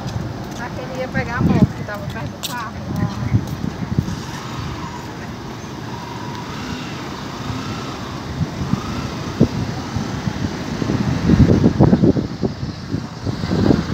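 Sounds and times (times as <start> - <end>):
road traffic noise: 0.0 - 13.9
faint wavering whine: 4.0 - 11.7.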